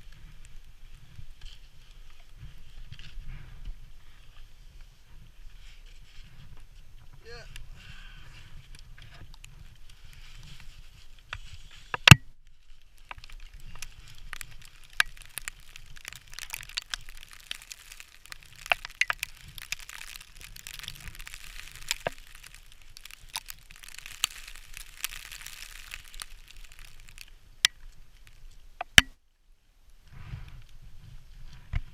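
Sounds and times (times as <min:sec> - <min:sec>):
sharp cracks and knocks: 0:11.3 - 0:29.2
boots scraping on icy rock: 0:13.9 - 0:27.3.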